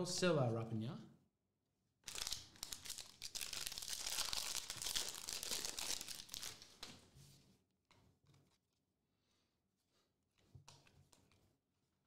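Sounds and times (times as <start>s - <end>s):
foil pack crinkling and tearing: 2.0s - 6.9s.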